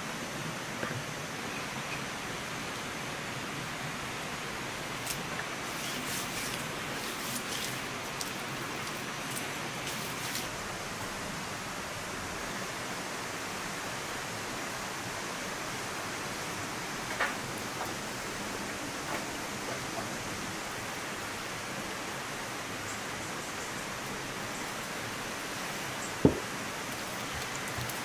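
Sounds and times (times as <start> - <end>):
steady rain hiss: 0.0 - 28.0
hand rubbing seasoning into fish: 5.6 - 10.5.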